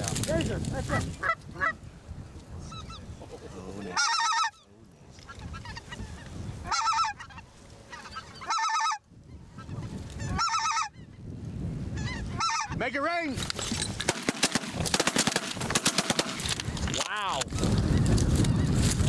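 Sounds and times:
geese honking: 3.8 - 11.2, 11.9 - 13.0.

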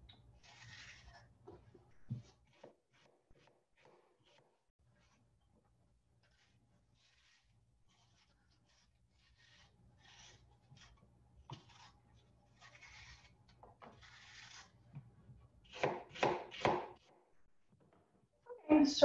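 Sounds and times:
knife scraping apple: 0.3 - 5.4, 6.1 - 15.1
knife cutting onto board: 6.2 - 15.1.

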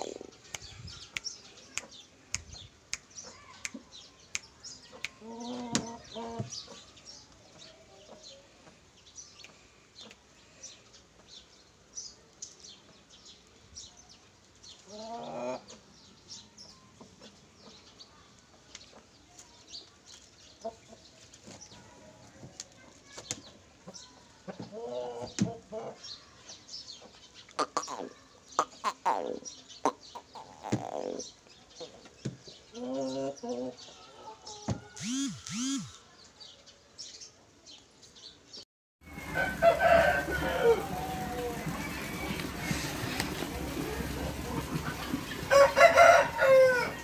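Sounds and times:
chickens clucking: 0.0 - 2.6, 3.2 - 10.3, 14.8 - 15.9, 19.9 - 26.1, 26.9 - 36.0, 39.1 - 47.0
short high chirps: 35.0 - 36.0.

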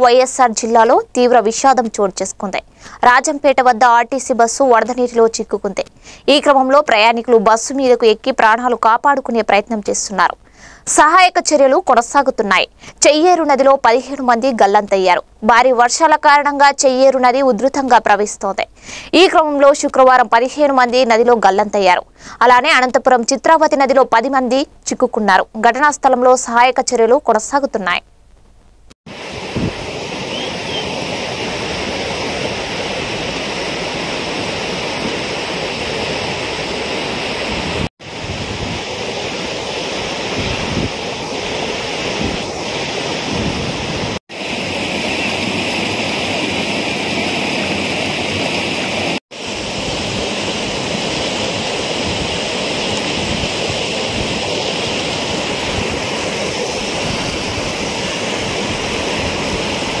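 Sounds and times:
floodwater rushing: 29.1 - 60.0
wind buffeting microphone: 29.4 - 30.8, 37.5 - 39.0, 40.1 - 41.1, 43.2 - 44.2.

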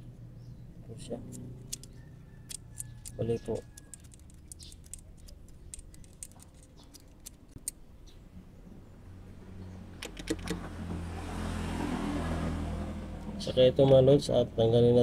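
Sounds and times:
passing vehicle engine hum: 8.3 - 14.6.

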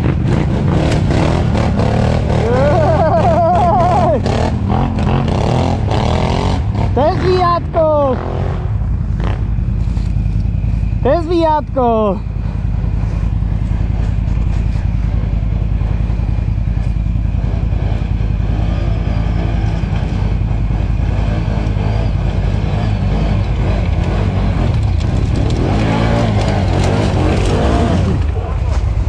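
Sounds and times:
atv engine running: 0.0 - 29.0.

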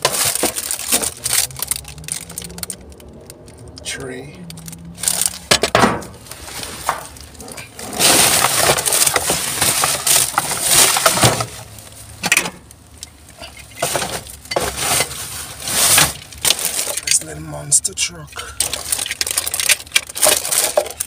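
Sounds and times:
hard items clinking and knocking: 0.0 - 3.8, 4.5 - 12.6, 18.3 - 21.0
plastic bags and cardboard rustling: 0.0 - 12.6, 13.2 - 21.0.

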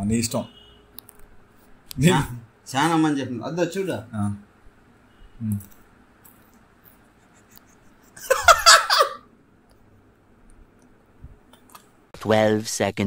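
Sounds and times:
man laughing: 7.2 - 9.3.

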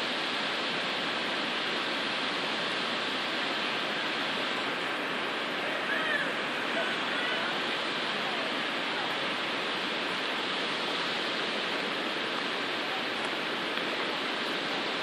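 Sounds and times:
river water rushing: 0.0 - 15.0.

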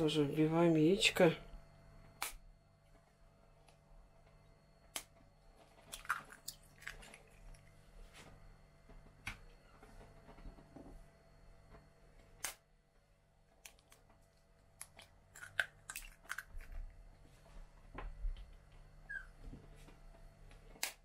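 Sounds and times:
egg cracking on bowl rim: 5.9 - 7.4, 14.8 - 16.7.

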